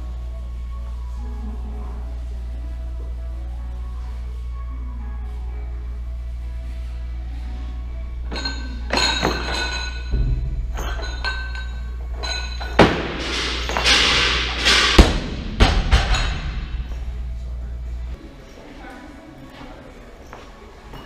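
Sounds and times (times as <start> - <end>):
background music: 0.0 - 18.5
barbell plates clinking: 8.3 - 17.2
barbell thudding on wooden platform: 12.2 - 17.0.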